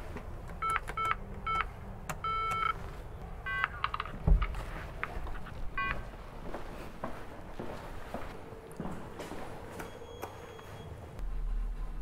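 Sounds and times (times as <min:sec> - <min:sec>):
intercom keypad beeping: 0:00.6 - 0:02.8, 0:03.5 - 0:03.8.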